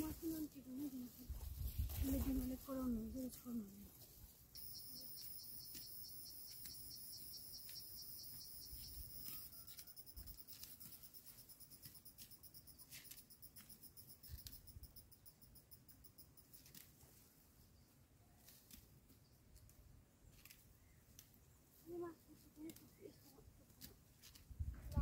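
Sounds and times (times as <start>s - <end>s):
high-pitched insect chirring: 4.6s - 16.6s.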